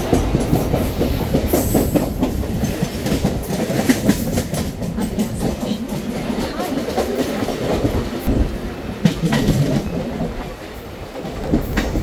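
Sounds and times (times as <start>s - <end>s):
train wheels rumbling on track: 0.0s - 12.0s
wheels clacking over rail joints: 0.0s - 12.0s.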